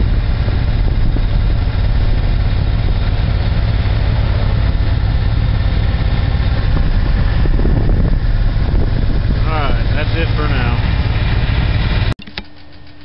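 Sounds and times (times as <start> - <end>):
motorcycle engine rumble: 0.0 - 13.0.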